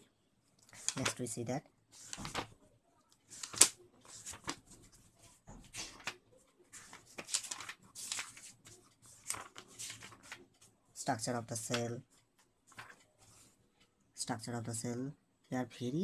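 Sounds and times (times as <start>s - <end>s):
book pages turning: 0.7s - 1.2s, 2.0s - 2.6s, 3.2s - 10.7s, 12.7s - 13.5s.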